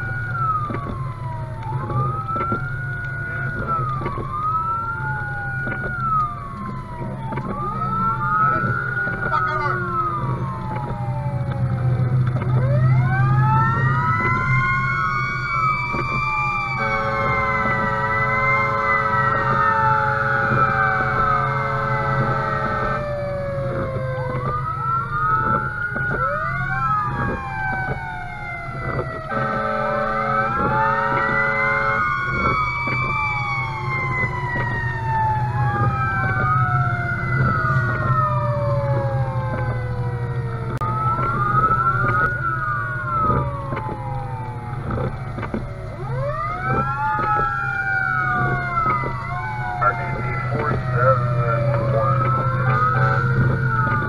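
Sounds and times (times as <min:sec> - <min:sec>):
engine drone: 0:00.0 - 0:54.0
fire engine siren wailing: 0:00.0 - 0:54.0
long horn blasts: 0:16.7 - 0:23.1, 0:29.2 - 0:32.5.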